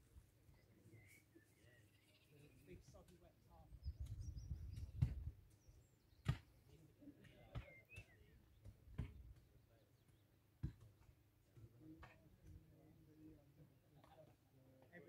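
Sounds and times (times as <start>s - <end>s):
faint bird chirp: 0.4s - 10.4s
wind buffeting microphone: 3.8s - 5.4s.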